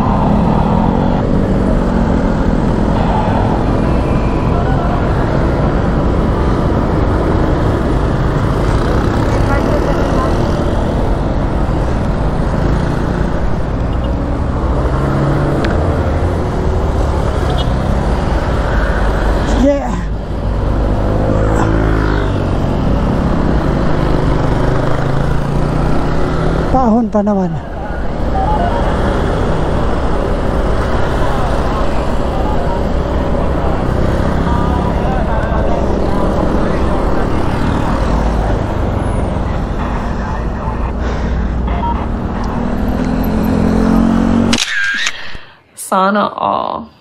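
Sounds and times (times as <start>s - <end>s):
wind rushing over microphone: 0.0s - 9.2s
wind and road rumble: 0.0s - 45.6s.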